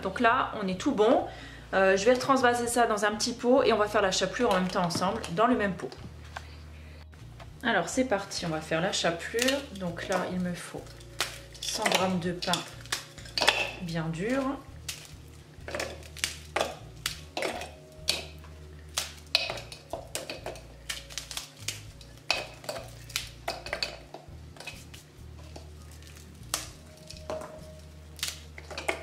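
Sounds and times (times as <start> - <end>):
stale bread cracking: 9.2 - 29.0.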